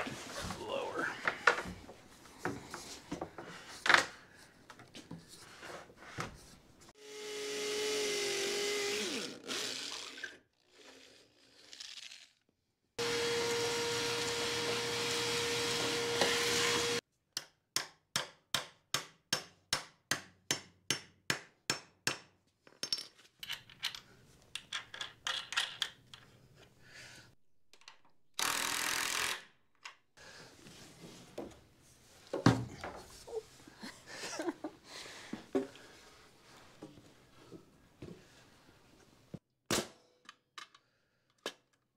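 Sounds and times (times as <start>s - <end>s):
hammer drill boring concrete: 7.0s - 10.3s, 13.0s - 17.0s, 28.4s - 29.4s.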